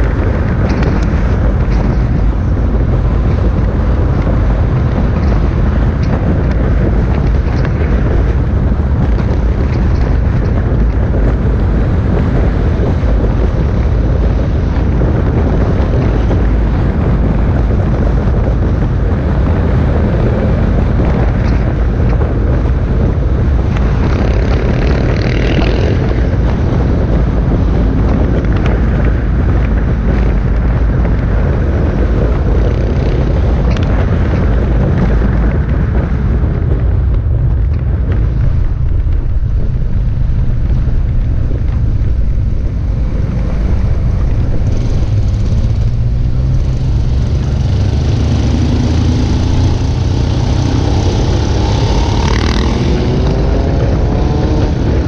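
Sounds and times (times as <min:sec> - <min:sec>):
motorcycle engines rumbling: 0:00.0 - 0:55.0
motorcycle engine revving up: 0:43.2 - 0:55.0.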